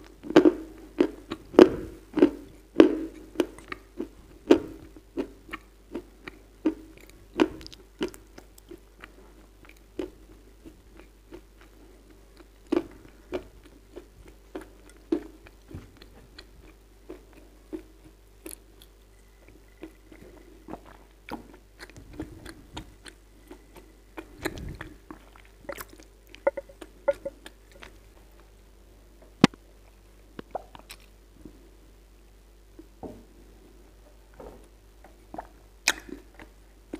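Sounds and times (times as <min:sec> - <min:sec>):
chewing and crunching clay: 0:00.0 - 0:28.0
wet mouth clicks: 0:25.7 - 0:27.4.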